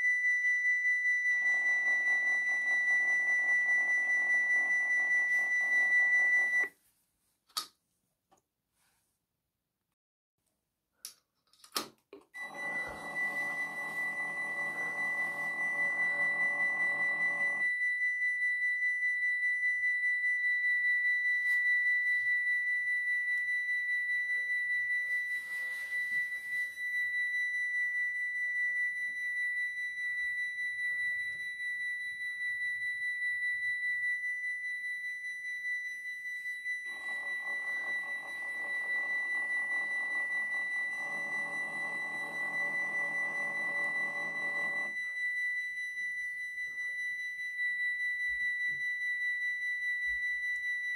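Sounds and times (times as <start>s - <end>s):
electronic warning bells ringing: 12.4s - 17.7s, 36.9s - 45.0s.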